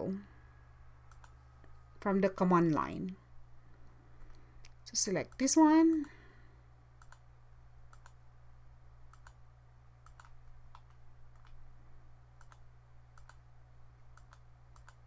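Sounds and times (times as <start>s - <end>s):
steady low hum: 0.0s - 15.0s
computer mouse clicks: 1.1s - 1.4s, 7.0s - 7.2s, 7.9s - 8.2s, 9.1s - 9.4s, 10.0s - 11.6s, 12.4s - 12.6s, 13.2s - 13.4s, 14.1s - 15.0s.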